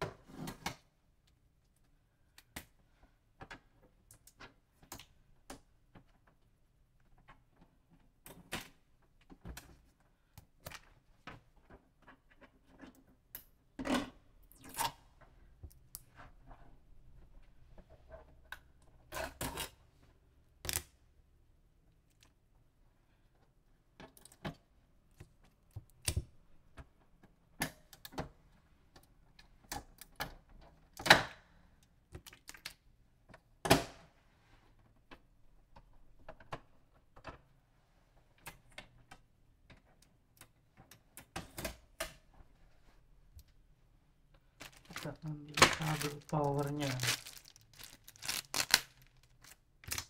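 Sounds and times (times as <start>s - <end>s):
tape peeling off plastic: 45.8s - 50.0s.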